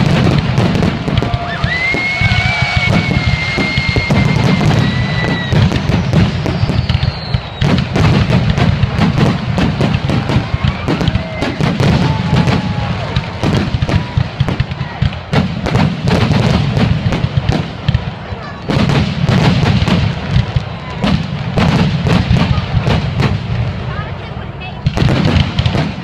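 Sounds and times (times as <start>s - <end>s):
firework shells bursting: 0.0s - 23.7s
high whistle: 1.7s - 7.6s.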